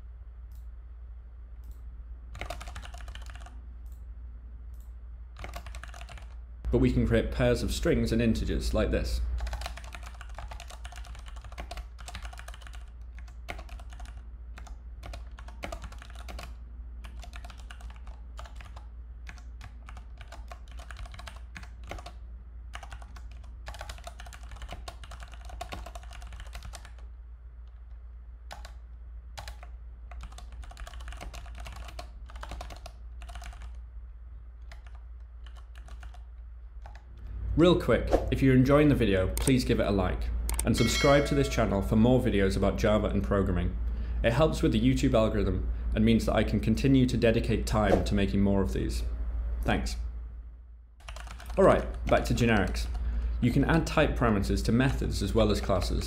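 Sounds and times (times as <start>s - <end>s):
low steady hum: 0.0s - 56.0s
typing on computer keyboard: 1.6s - 4.0s, 5.4s - 6.4s, 9.4s - 27.1s, 28.5s - 28.8s, 29.4s - 33.8s, 34.7s - 37.1s, 51.0s - 53.0s.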